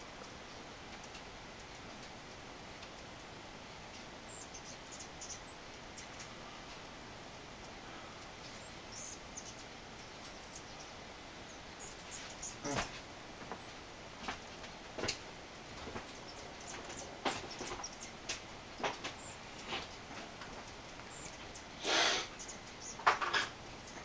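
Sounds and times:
steady hiss: 0.0s - 24.0s.

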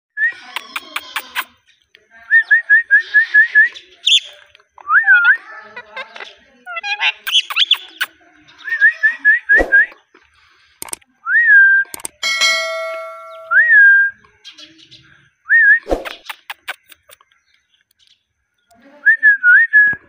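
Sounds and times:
parakeet chattering calls: 6.7s - 8.1s, 16.0s - 17.2s
parakeet whistling and calling: 6.8s - 8.0s.

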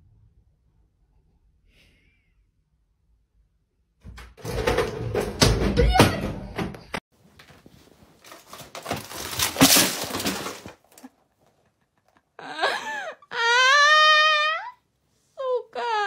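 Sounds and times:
plastic box crashing to floor: 4.4s - 6.7s, 8.2s - 11.1s
picture frames clattering: 7.4s - 11.6s.

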